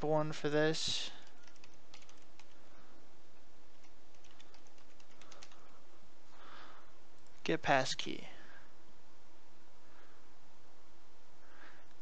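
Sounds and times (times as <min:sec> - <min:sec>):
background hiss and hum: 0:00.0 - 0:12.0
keyboard typing clicks: 0:01.2 - 0:02.6, 0:03.7 - 0:05.7.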